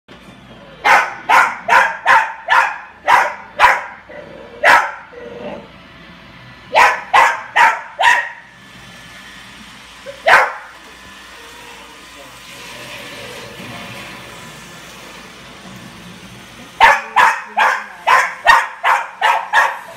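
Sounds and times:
small dog barking: 0.8 - 4.0, 4.6 - 5.1, 6.7 - 8.4, 10.1 - 10.7, 16.8 - 19.9.

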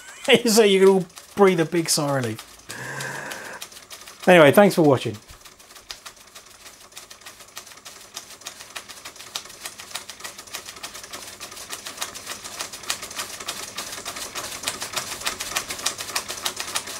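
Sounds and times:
toy steam engines ticking: 0.0 - 11.1.

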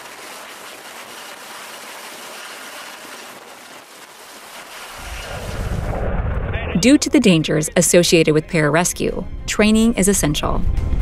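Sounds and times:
helicopter downwash wind: 0.0 - 9.2
deep rumble: 5.0 - 8.4.

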